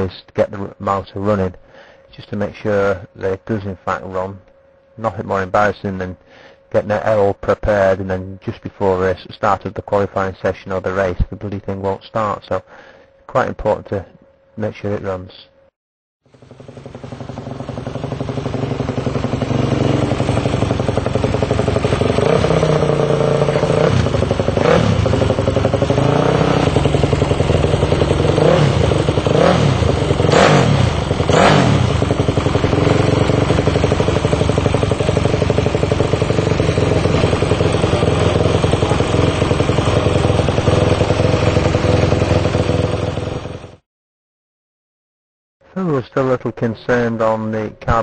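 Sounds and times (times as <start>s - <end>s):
motorcycle engine revving: 16.3s - 43.8s.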